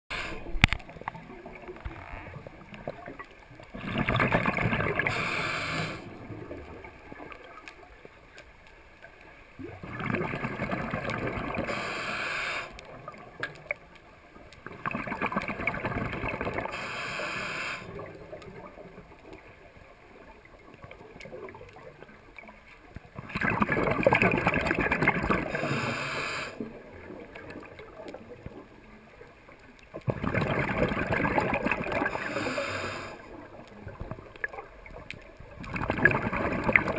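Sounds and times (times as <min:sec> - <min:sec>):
bubbly underwater exhalations: 0:02.8 - 0:07.2, 0:09.6 - 0:13.1, 0:14.7 - 0:18.4, 0:23.2 - 0:27.8, 0:30.0 - 0:33.5, 0:35.6 - 0:36.9
regulator hiss: 0:05.1 - 0:06.1, 0:11.6 - 0:12.8, 0:16.7 - 0:17.9, 0:25.6 - 0:26.6, 0:32.2 - 0:33.2.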